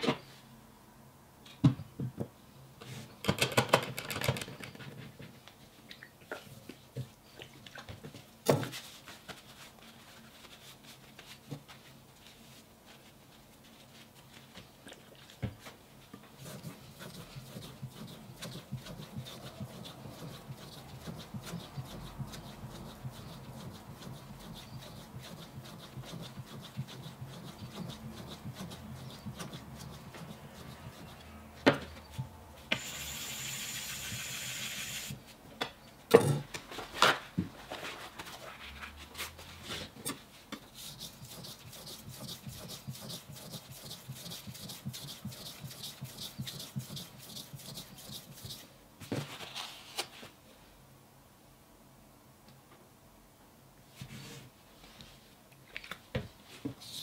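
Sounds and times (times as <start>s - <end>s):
knife scraping on whetstone: 16.6s - 31.3s
steady hiss: 32.7s - 35.4s.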